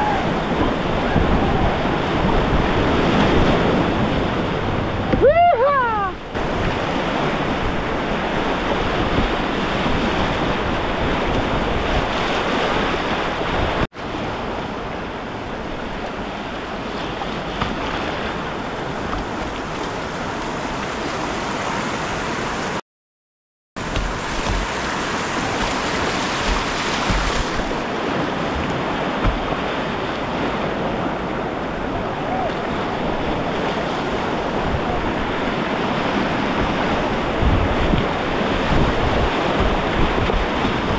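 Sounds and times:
whitewater rapids rushing: 0:00.0 - 0:13.9, 0:23.8 - 0:40.9
water splashing over bow: 0:00.0 - 0:22.8, 0:23.8 - 0:40.9.

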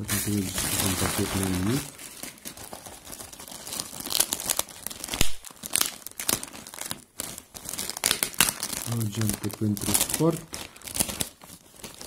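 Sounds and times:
packing tape peeling: 0:00.0 - 0:12.0
plastic bag crinkling: 0:00.0 - 0:12.0.

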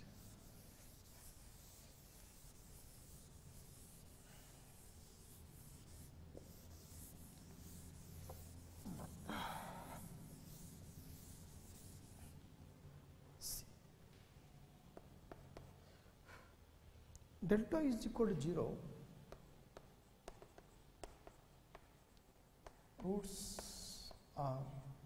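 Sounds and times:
duster rubbing chalkboard: 0:00.0 - 0:09.3, 0:09.9 - 0:12.3.

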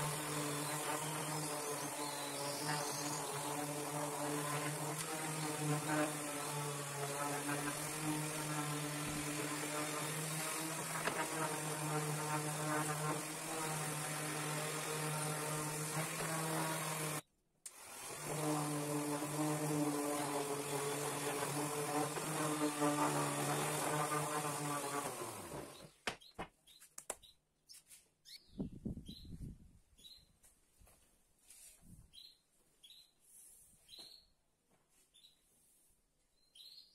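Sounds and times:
orbital sander buzzing: 0:00.0 - 0:26.0
faint bird chirps: 0:25.8 - 0:30.4, 0:36.3 - 0:36.9.

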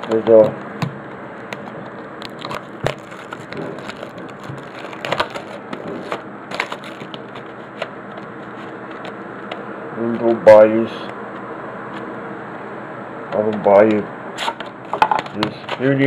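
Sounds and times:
plastic packaging crinkling: 0:01.7 - 0:09.2.

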